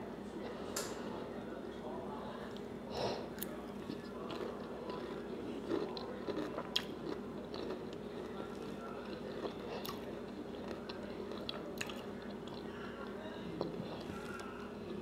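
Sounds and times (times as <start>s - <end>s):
faint steady hum: 0.0s - 15.0s
person chewing with mouth closed: 3.4s - 12.8s.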